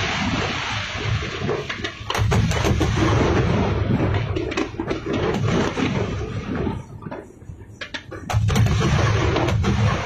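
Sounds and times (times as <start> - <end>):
fireworks bangs and crackles: 0.0 - 10.0.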